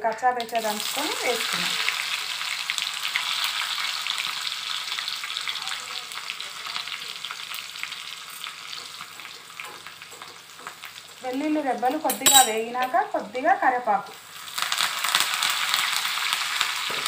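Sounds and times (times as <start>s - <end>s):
garlic and chillies sizzling in oil: 0.0s - 17.0s.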